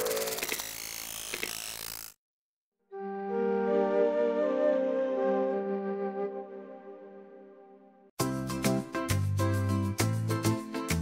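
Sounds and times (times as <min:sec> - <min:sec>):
upbeat music with bass line: 0:08.2 - 0:11.0.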